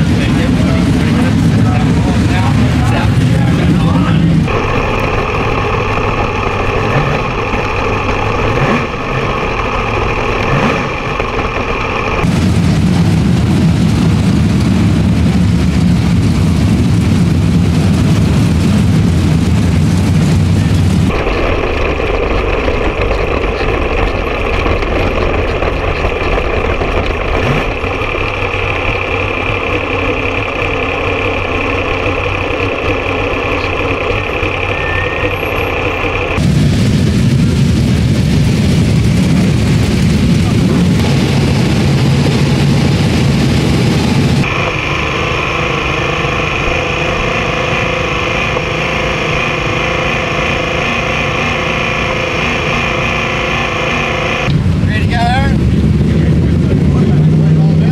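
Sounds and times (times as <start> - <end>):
pack of race cars roaring: 0.0 - 57.9
race car engine running: 0.0 - 57.9.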